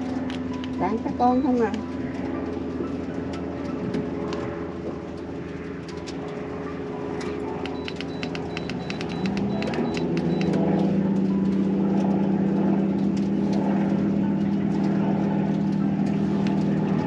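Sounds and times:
engine running steadily: 0:00.0 - 0:17.0
sharp clicks: 0:07.6 - 0:10.9.

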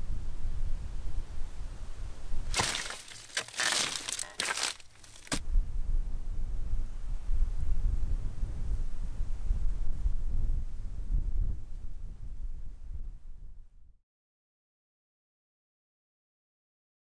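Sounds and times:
blade crunching into agave leaves: 0:02.5 - 0:05.4
sharp crack: 0:02.5 - 0:05.4
wind buffeting microphone: 0:05.4 - 0:13.8.

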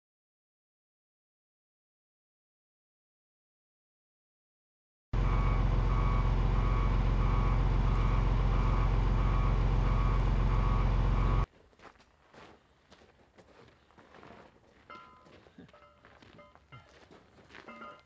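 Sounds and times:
backup alarm beeping: 0:05.2 - 0:11.5
heavy vehicle engine running: 0:05.2 - 0:11.5.

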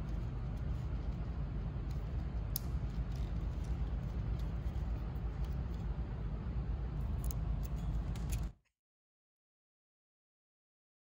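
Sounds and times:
low background rumble: 0:00.0 - 0:08.5.

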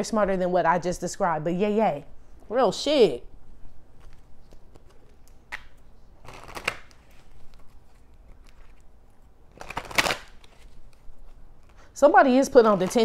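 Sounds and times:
cards shuffling and rustling: 0:03.9 - 0:13.0.

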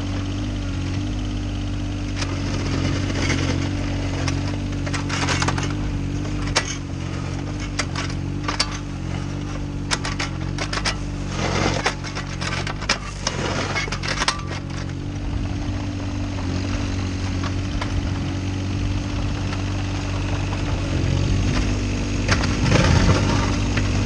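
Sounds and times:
diesel engine running: 0:00.0 - 0:24.0
bucket scraping soil and gravel: 0:10.2 - 0:15.6, 0:19.8 - 0:24.0.

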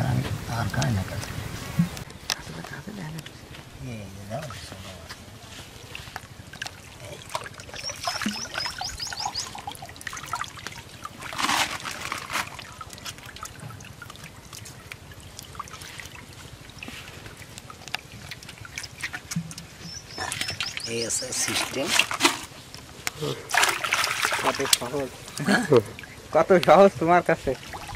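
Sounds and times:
pond water splashing: 0:04.2 - 0:27.9.

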